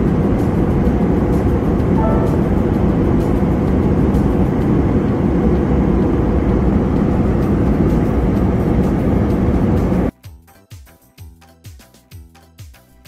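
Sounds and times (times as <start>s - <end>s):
airplane cabin engine rumble: 0.0s - 10.1s.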